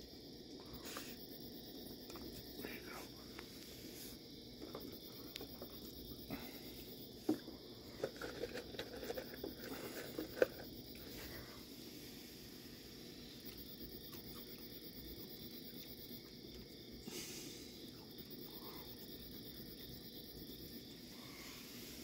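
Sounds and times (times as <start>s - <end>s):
insects trilling: 0.0s - 22.0s
small ticks: 4.6s - 6.3s.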